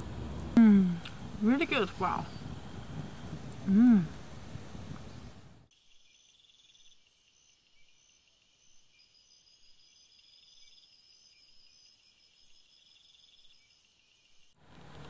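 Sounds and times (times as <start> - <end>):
crickets and insects chirping: 5.1 - 14.6.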